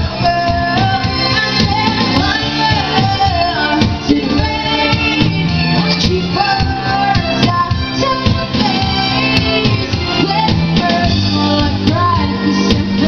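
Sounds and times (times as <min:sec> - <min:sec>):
electric guitar: 0:00.0 - 0:13.0
live band playing: 0:00.0 - 0:13.0
woman singing: 0:00.0 - 0:13.0.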